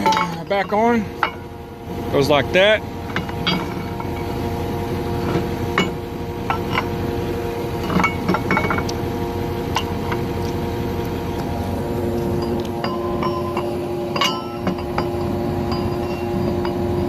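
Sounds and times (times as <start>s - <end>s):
steady mechanical hum: 0.0s - 17.0s
metal clinks and taps: 12.4s - 17.0s.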